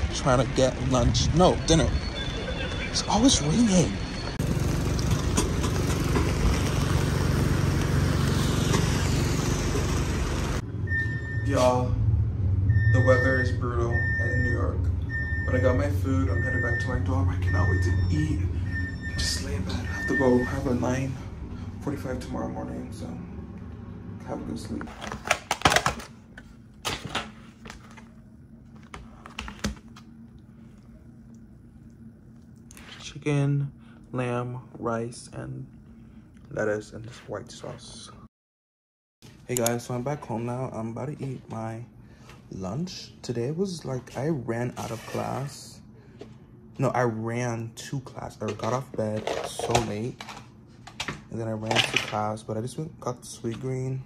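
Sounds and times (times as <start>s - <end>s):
steady low hum: 0.0s - 38.3s
rain hissing: 4.4s - 10.6s
traffic rumbling on wet roads: 4.4s - 10.6s.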